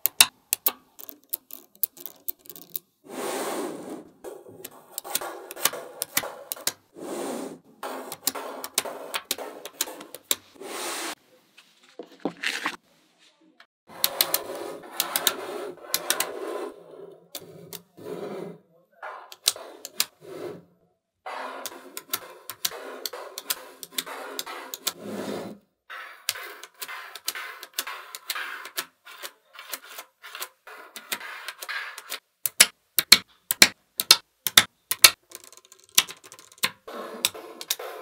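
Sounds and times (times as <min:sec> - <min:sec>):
magnet balls clicking together: 0:00.0 - 0:02.9, 0:26.2 - 0:37.8.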